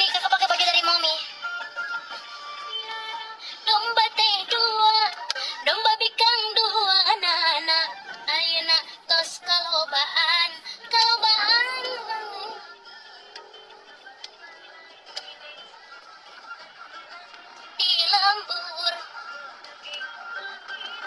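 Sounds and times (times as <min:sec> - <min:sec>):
woman singing: 0:00.0 - 0:01.3, 0:02.7 - 0:12.9, 0:17.7 - 0:21.0
music: 0:00.0 - 0:21.0.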